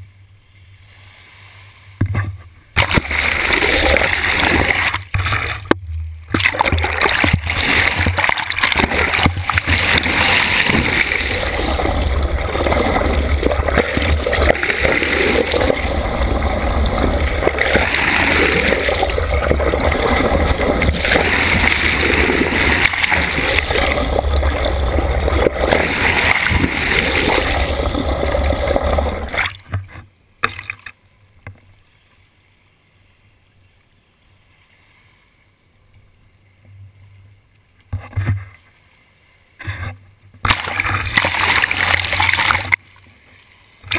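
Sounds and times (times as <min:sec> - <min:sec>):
short water splashes: 0:02.8 - 0:29.6, 0:40.4 - 0:42.8
water rushing underwater: 0:02.8 - 0:29.7, 0:40.5 - 0:42.8.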